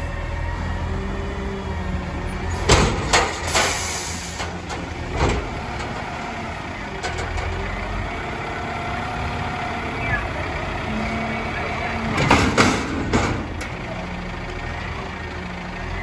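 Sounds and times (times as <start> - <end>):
garbage truck running: 0.0 - 16.0
loud metal bangs: 2.6 - 6.2, 12.0 - 13.8.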